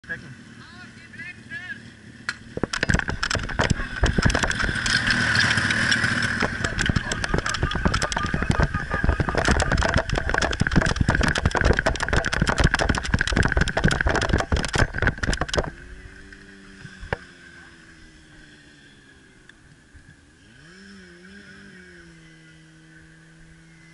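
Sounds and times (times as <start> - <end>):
fire pump engine drone: 1.3 - 20.4
wind buffeting camera: 2.4 - 16.2
rapid footsteps: 2.5 - 15.8.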